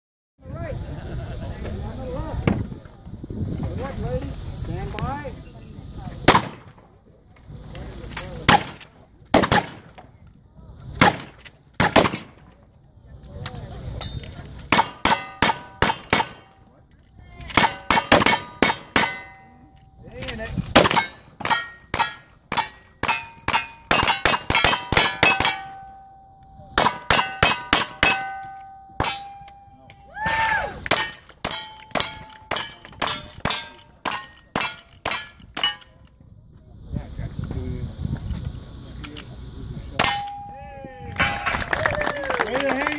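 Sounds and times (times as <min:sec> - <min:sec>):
steel plates clanging: 0:17.5 - 0:30.1, 0:30.8 - 0:36.1, 0:40.0 - 0:40.6, 0:41.2 - 0:41.7.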